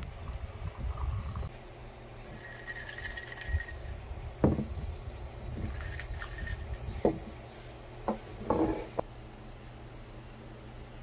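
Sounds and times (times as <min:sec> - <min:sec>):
glass knocking on wooden table: 0:04.4 - 0:04.7, 0:07.0 - 0:07.3, 0:08.1 - 0:09.0.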